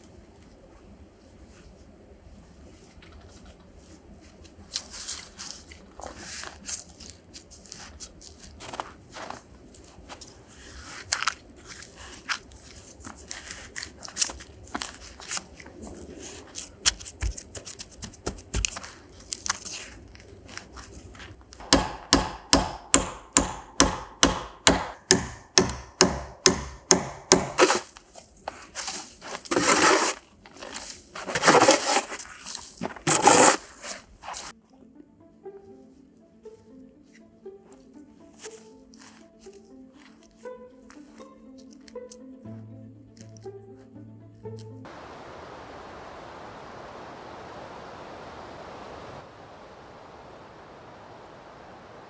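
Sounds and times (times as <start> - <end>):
fibre rustling: 2.5 - 21.6, 27.6 - 34.6
tool tapping into crack: 21.6 - 27.6
snow shovel scraping snow: 27.6 - 34.5.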